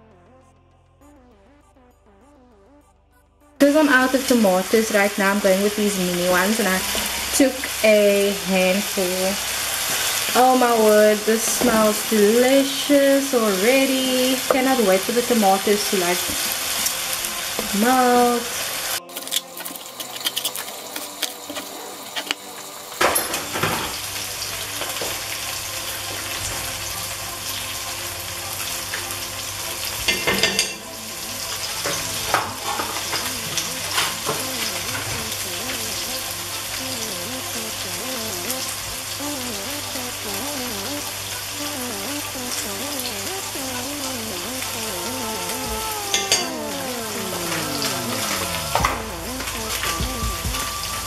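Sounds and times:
food sizzling in oil: 0:04.2 - 0:25.7.

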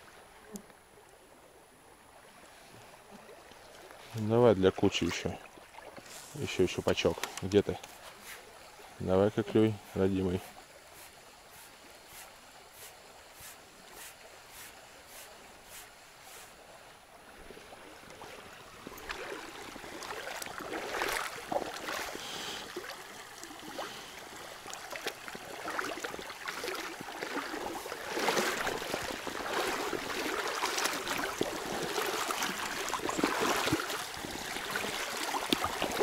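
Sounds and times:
water rushing over stones: 0:17.4 - 0:36.0.

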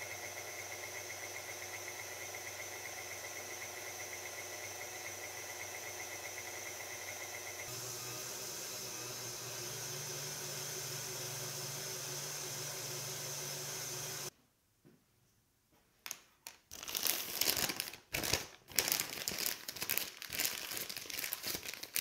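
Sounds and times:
stand mixer motor whirring: 0:00.0 - 0:14.3.

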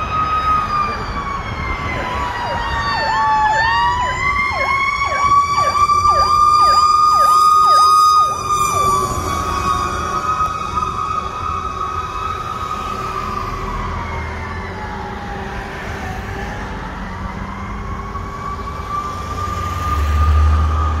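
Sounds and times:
fire engine siren wailing: 0:00.0 - 0:21.0
traffic rumbling: 0:00.0 - 0:21.0.

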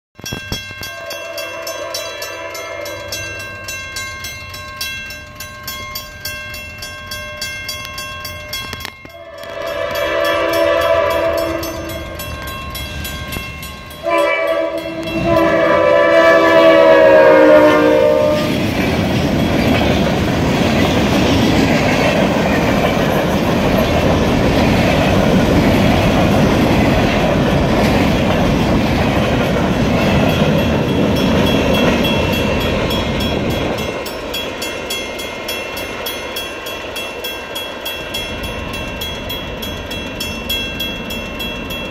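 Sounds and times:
wheels clattering on rails: 0:00.2 - 0:41.9
train rumbling past: 0:00.3 - 0:41.9
locomotive horn blasts: 0:09.1 - 0:12.1, 0:14.0 - 0:18.6.

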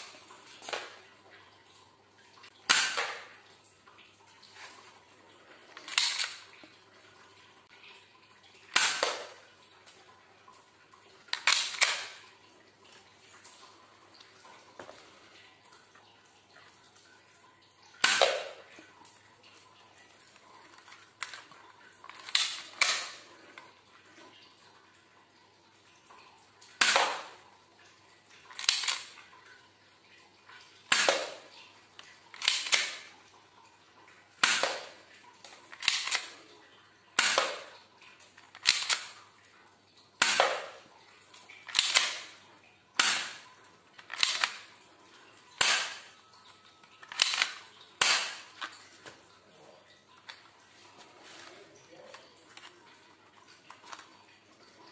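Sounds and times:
pistol slide racking: 0:05.8 - 0:06.4, 0:28.6 - 0:29.1, 0:32.3 - 0:33.0, 0:35.7 - 0:36.3, 0:38.5 - 0:39.2, 0:41.7 - 0:42.3, 0:44.1 - 0:44.6, 0:47.0 - 0:48.4.

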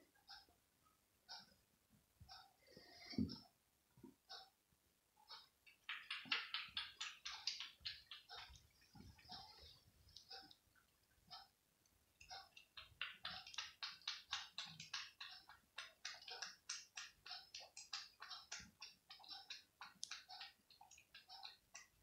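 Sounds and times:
cat lapping milk: 0:12.4 - 0:22.0.

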